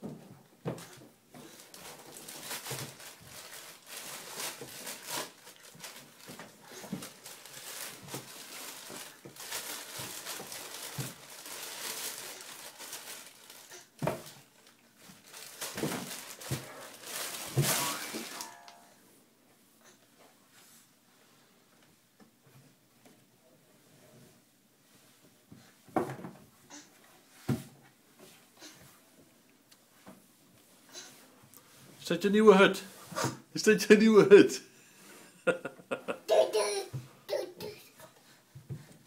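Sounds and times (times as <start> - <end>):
fabric and diaper rustling: 0.7 - 18.8.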